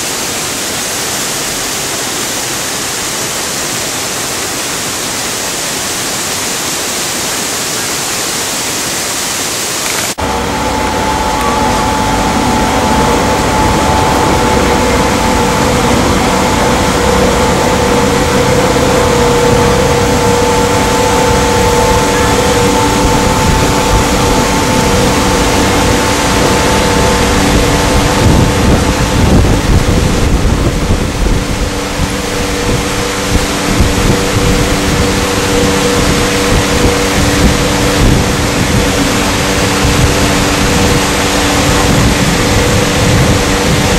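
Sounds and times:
water rushing: 0.0s - 43.9s
boat motor running: 9.8s - 43.9s
wind on the microphone: 11.6s - 43.9s.

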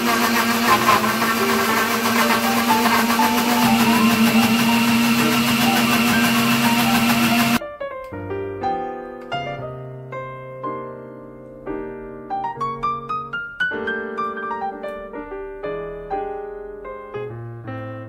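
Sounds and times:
countertop blender running: 0.0s - 7.6s
gentle piano music: 0.8s - 18.0s.

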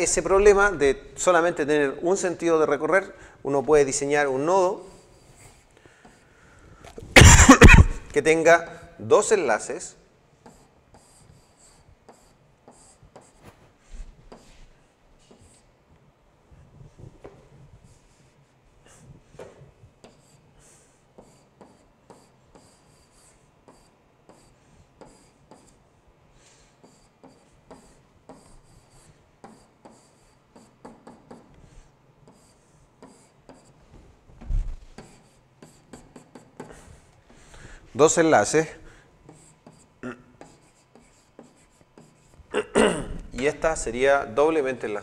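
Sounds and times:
stylus scratching strokes: 10.4s - 15.8s, 20.0s - 33.9s, 34.8s - 42.5s.

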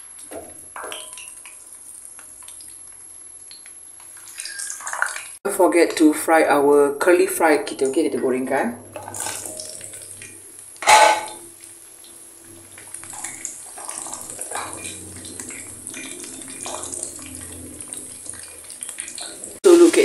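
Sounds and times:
fries sizzling in hot oil: 0.0s - 20.0s
wooden spatula stirring: 12.4s - 19.6s.

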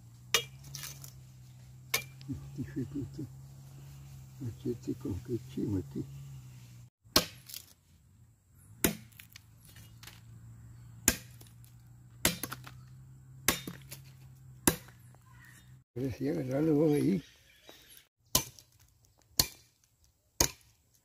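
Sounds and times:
machete chopping wood: 0.3s - 1.1s, 1.9s - 2.2s, 7.1s - 7.8s, 8.8s - 9.4s, 11.0s - 12.8s, 13.4s - 15.1s, 18.3s - 20.8s.

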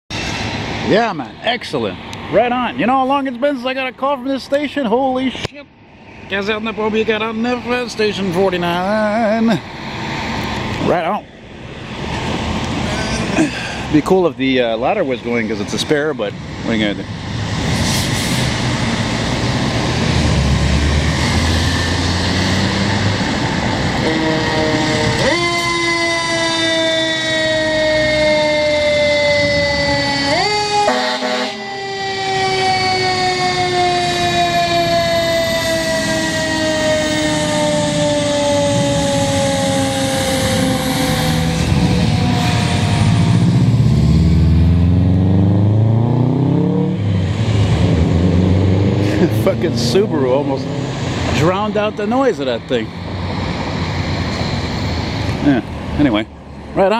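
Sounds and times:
diesel truck engine rumbling: 6.3s - 31.6s, 32.3s - 56.9s
car engine revving past: 17.3s - 27.1s, 38.8s - 51.8s
fire truck horn chord: 24.0s - 25.7s, 30.8s - 31.6s.

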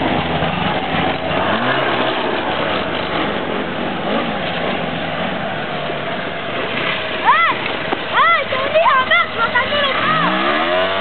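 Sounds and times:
snowmobile engine revving: 0.0s - 11.0s
snowmobile engines running: 0.0s - 11.0s.

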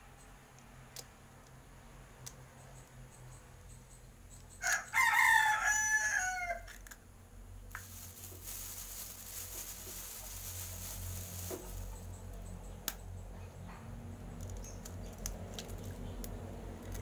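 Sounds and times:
rooster crowing: 4.6s - 6.7s.

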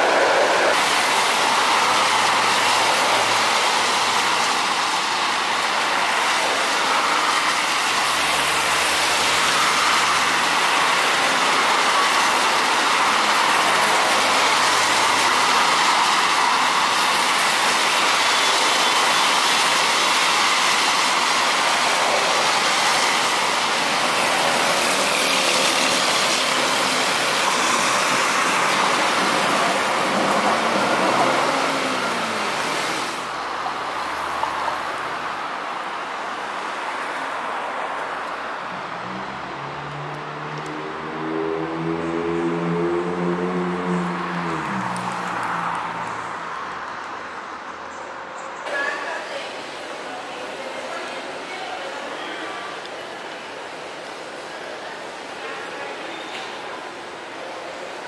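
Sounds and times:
rain hissing: 0.0s - 35.3s
car tyres on wet road: 0.0s - 58.0s
light rail trains passing: 0.0s - 58.0s.

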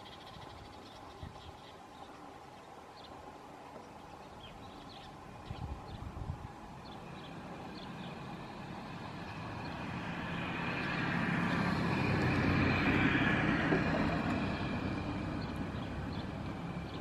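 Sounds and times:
vehicle passing by: 6.8s - 17.0s.

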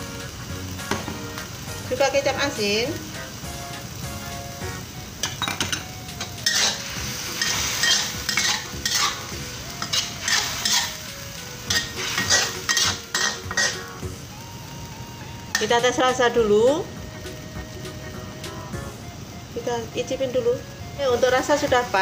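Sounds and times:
food sizzling: 0.0s - 22.0s
metal spatula scraping wok: 5.2s - 14.0s, 15.5s - 15.9s.

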